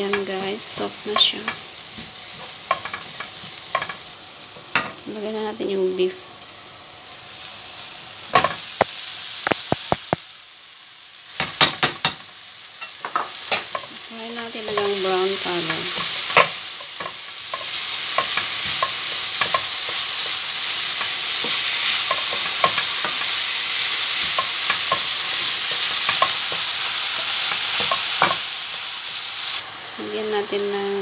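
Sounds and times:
meat sizzling in a frying pan: 0.0s - 31.0s
spatula scraping a pan: 0.2s - 4.1s.

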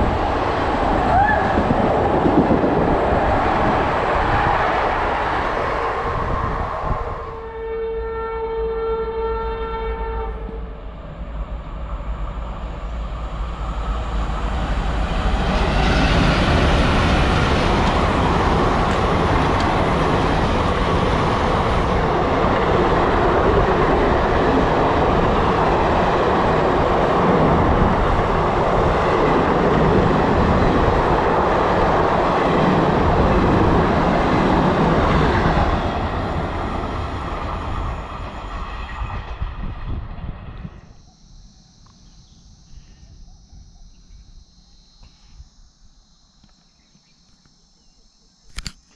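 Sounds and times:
train wheels rumbling on rails: 0.0s - 7.5s, 10.3s - 40.8s.

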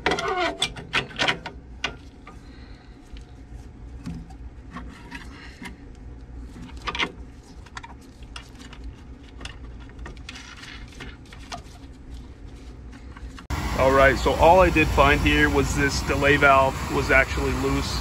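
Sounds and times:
metal parts clicking and scraping: 0.0s - 2.4s, 4.2s - 13.5s
steady low hum: 0.6s - 18.0s.

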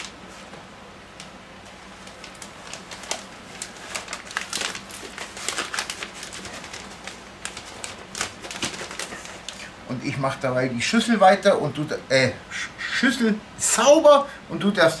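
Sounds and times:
plastic bag crinkling: 1.8s - 9.7s.

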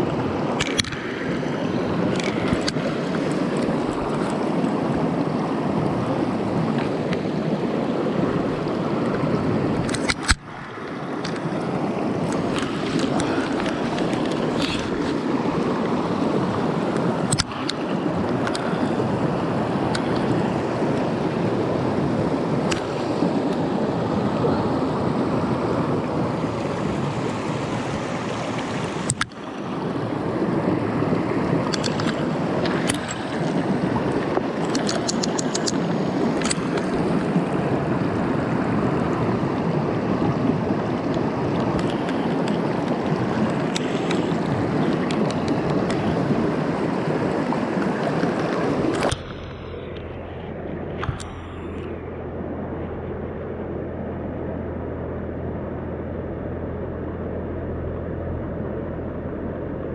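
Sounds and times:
stream rushing over rocks: 0.0s - 52.4s
river flowing with low rumble: 0.0s - 59.9s
handling clicks: 0.6s - 1.1s, 2.1s - 4.4s, 9.8s - 10.5s, 17.3s - 17.8s, 29.1s - 29.4s, 31.7s - 33.6s, 34.3s - 37.0s.

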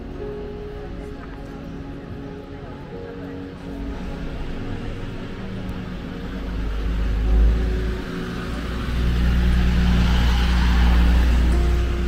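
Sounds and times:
vehicle engine and road rumble: 0.0s - 12.0s.

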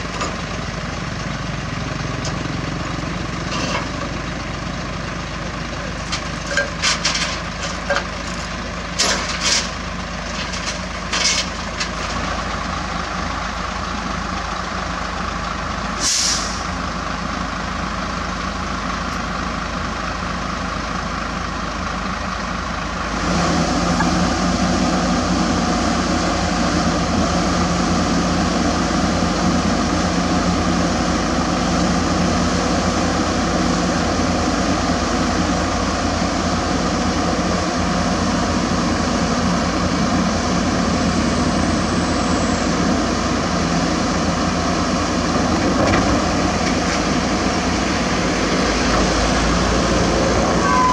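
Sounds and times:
diesel engine running: 0.0s - 50.9s
sharp metal clanks: 6.0s - 12.2s
hiss of air: 16.0s - 16.7s.

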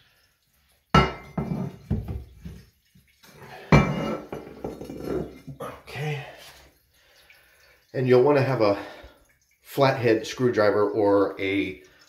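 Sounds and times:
porcelain lid scraping: 3.8s - 5.5s.

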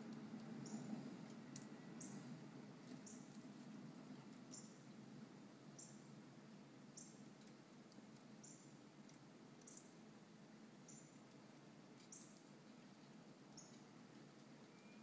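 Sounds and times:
faint high chirp: 14.6s - 15.0s.

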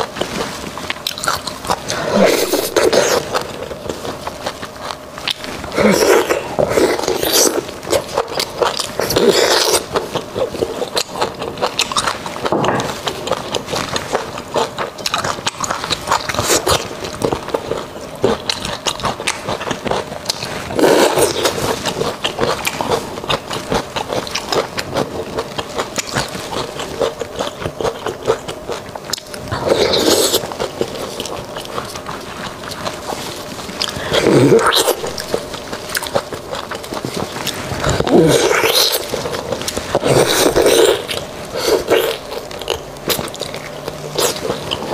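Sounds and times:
wet smacking and chewing: 0.0s - 44.9s.

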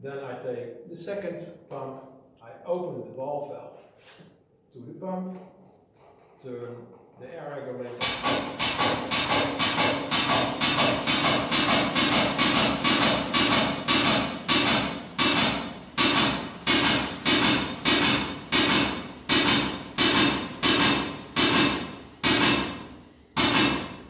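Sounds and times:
exhaust air puffs: 7.7s - 24.0s
air-driven water pump stroking: 7.8s - 23.8s.

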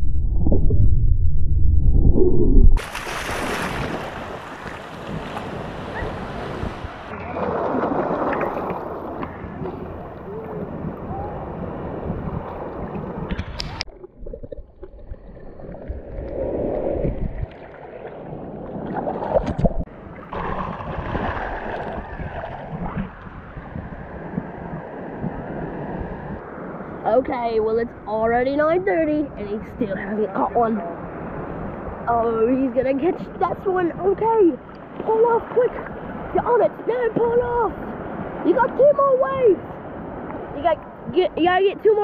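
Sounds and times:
muffled underwater rumble: 0.0s - 2.8s
surf hissing and splashing: 2.8s - 13.9s, 30.6s - 42.0s.

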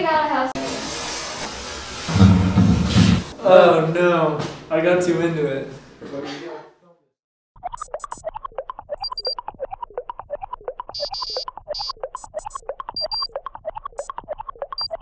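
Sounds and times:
bouncy synthesizer music: 7.6s - 15.0s
high bleeping tones: 7.6s - 15.0s.

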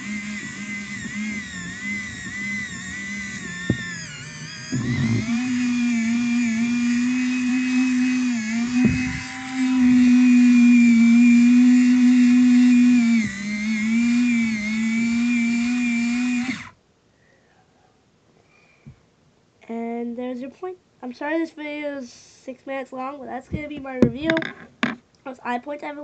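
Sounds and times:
electric pencil sharpener whirring: 0.0s - 16.8s.

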